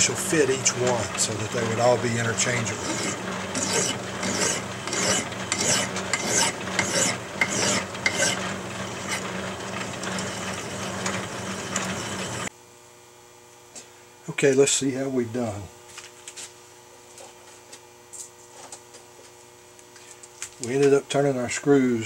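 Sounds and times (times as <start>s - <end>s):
lathe humming: 0.0s - 12.5s
hand file rasping on steel: 1.2s - 9.3s.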